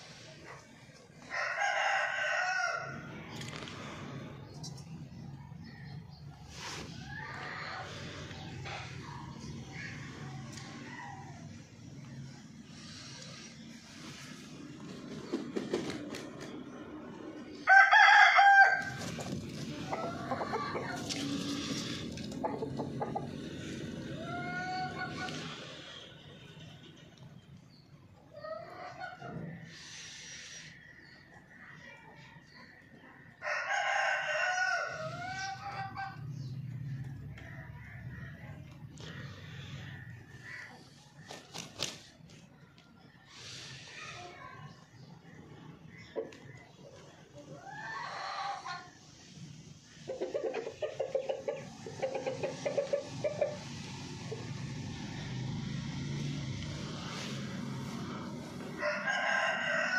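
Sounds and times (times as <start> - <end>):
rooster crowing: 1.3 - 3.1, 17.7 - 18.9, 33.4 - 35.8, 58.7 - 59.9
rooster flapping wings: 14.8 - 16.6, 18.8 - 19.9, 41.2 - 42.4
chicken clucks and calls: 17.7 - 25.7, 28.2 - 29.8, 30.7 - 41.9, 44.2 - 54.7, 58.0 - 59.9.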